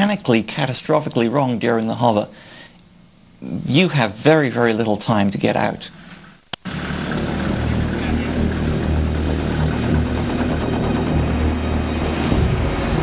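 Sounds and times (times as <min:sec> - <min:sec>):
jet engine running: 0:06.6 - 0:13.0.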